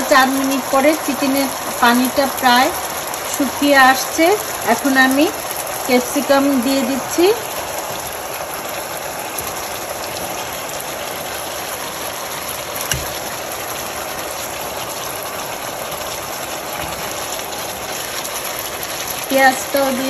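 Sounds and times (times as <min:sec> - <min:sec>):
curry simmering with hiss: 0:00.0 - 0:20.0
knock: 0:12.9 - 0:13.2.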